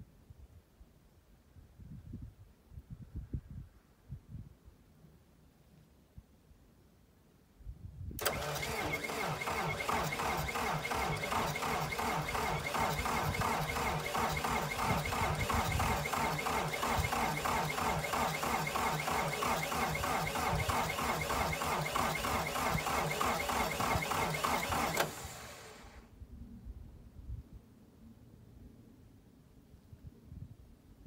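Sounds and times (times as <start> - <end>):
tractor engine cranking: 8.2 - 26.0
tractor engine running: 8.2 - 26.0.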